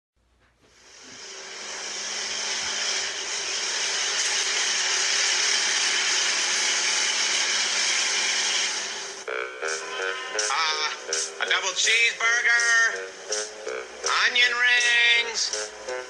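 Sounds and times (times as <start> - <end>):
steady whooshing hiss: 0.6 - 9.2.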